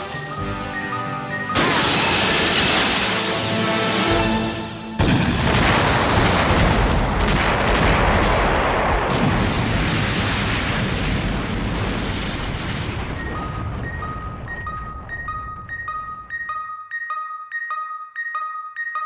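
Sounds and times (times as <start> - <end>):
loud explosion blast: 1.6 - 3.3, 5.0 - 15.7
long explosion rumble: 5.0 - 15.9.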